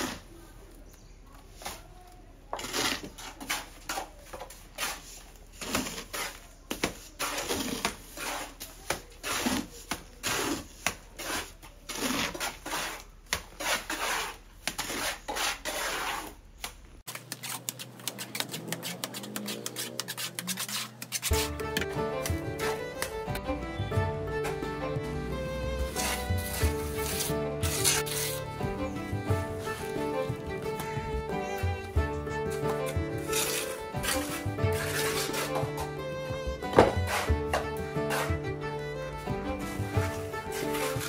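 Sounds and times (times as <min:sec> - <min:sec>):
hoe chopping wet mortar: 0:02.6 - 0:16.3, 0:17.0 - 0:23.4, 0:25.8 - 0:28.5, 0:29.7 - 0:38.6.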